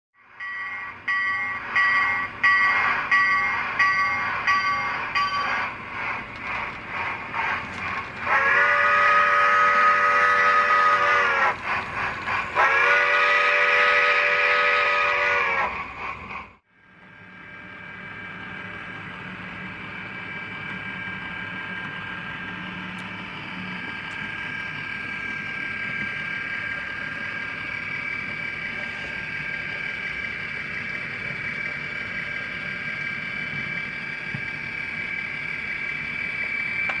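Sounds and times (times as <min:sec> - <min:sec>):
locomotive bell ringing: 0:00.2 - 0:05.8
diesel locomotive engine hum: 0:00.2 - 0:37.0
steam whistle blasts: 0:08.2 - 0:11.6, 0:12.6 - 0:15.8.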